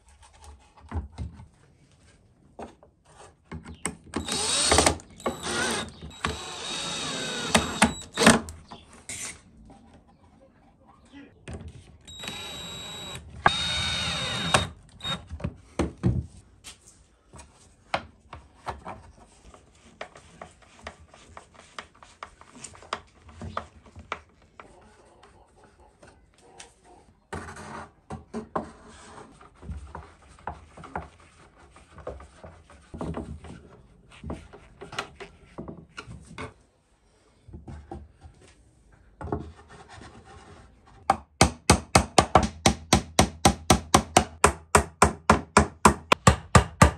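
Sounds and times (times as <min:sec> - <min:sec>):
cordless drill driving screw: 0:04.2 - 0:08.6, 0:12.1 - 0:15.3
hammer tapping nails: 0:41.1 - 0:46.9.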